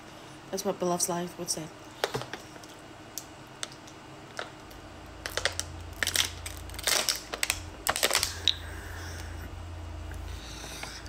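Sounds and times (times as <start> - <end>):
plastic water bottle crinkling: 5.2 - 8.6.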